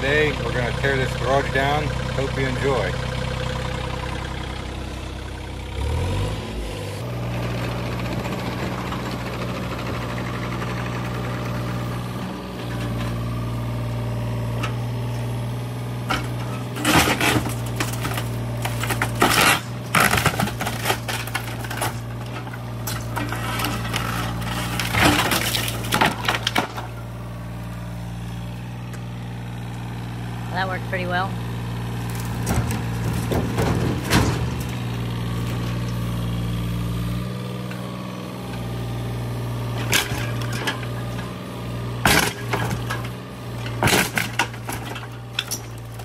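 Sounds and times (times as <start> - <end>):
diesel excavator engine running: 0.0 - 46.0
wood cracking and crashing: 15.9 - 27.2, 31.8 - 37.2, 39.6 - 46.0.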